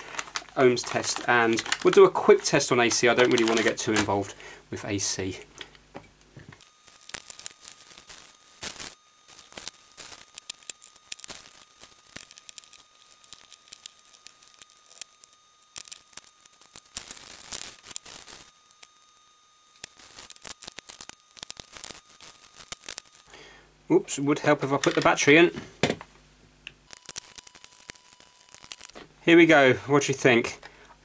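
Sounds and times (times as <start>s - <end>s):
paper towel rubbing and crinkling: 0.0s - 4.1s.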